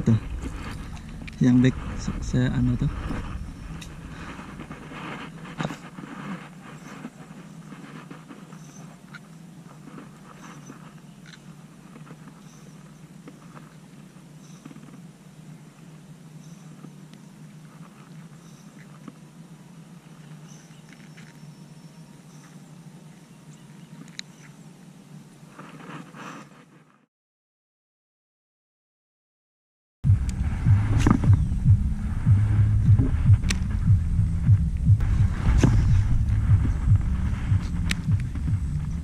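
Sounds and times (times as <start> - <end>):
low drone: 0.0 - 6.8, 30.1 - 39.0.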